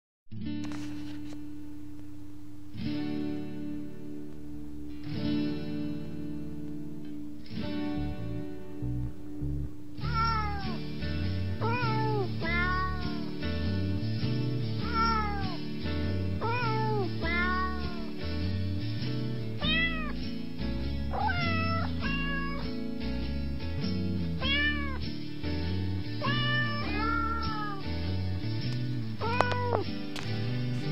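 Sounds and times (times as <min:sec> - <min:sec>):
background music with bass line: 0:04.8 - 0:30.9
cat meowing: 0:10.0 - 0:10.8, 0:11.6 - 0:13.3, 0:14.8 - 0:15.6, 0:16.4 - 0:18.1, 0:19.6 - 0:20.2, 0:21.1 - 0:22.7, 0:24.4 - 0:25.0, 0:26.2 - 0:27.8, 0:29.2 - 0:29.9.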